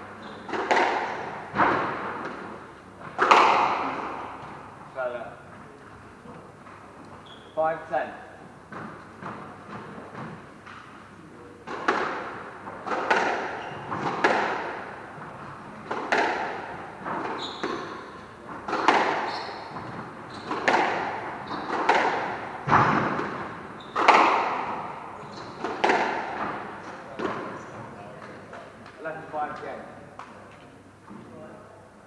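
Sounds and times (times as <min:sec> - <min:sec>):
shoe squeaks on wooden floor: 0:00.1 - 0:00.6, 0:07.2 - 0:07.6, 0:13.5 - 0:14.0, 0:17.2 - 0:18.2, 0:19.1 - 0:20.7, 0:21.4 - 0:21.8, 0:23.7 - 0:24.2, 0:25.2 - 0:25.6
squash ball struck by rackets: 0:00.4 - 0:04.6, 0:11.6 - 0:27.5.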